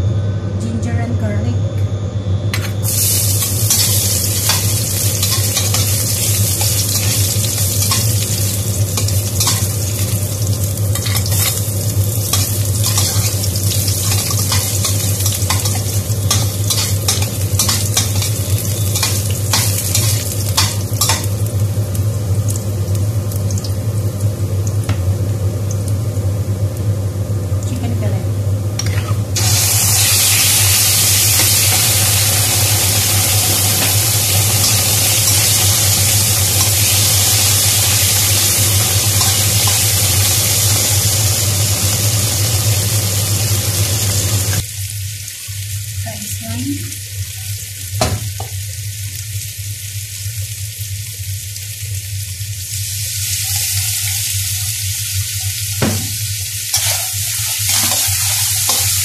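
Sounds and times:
steady low hum: 0:00.0 - 0:47.2
chicken sizzling in hot oil: 0:02.7 - 0:59.0
metal spatula scraping wok: 0:12.3 - 0:13.4, 0:28.8 - 0:29.3, 0:56.7 - 0:58.9.

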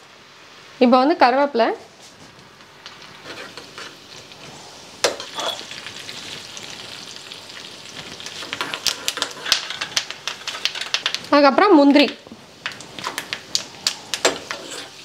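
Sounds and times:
spices sizzling in hot ghee: 0:00.0 - 0:15.0
metal spoon stirring: 0:03.2 - 0:04.0, 0:05.2 - 0:05.7, 0:14.3 - 0:15.0
sharp crackles: 0:05.3 - 0:14.8.

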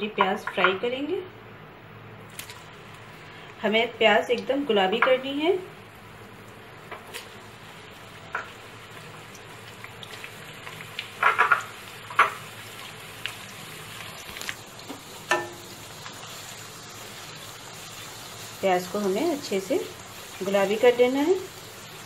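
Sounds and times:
onions sizzling in oil: 0:02.5 - 0:22.0
spatula knocking wok: 0:11.1 - 0:12.5, 0:14.9 - 0:15.9.

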